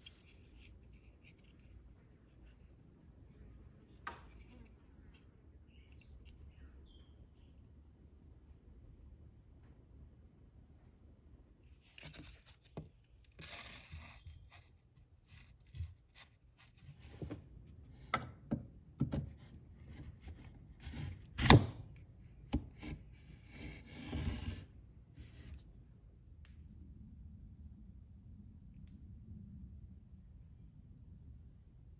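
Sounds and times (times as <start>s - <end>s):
wood handling scrapes and knocks: 11.8s - 21.8s, 22.5s - 25.7s.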